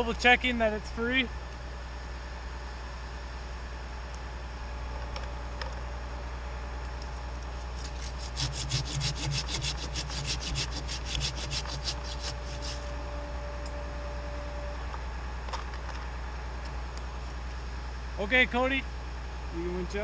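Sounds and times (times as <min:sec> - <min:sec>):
hand saw cutting wood: 0:07.8 - 0:12.9.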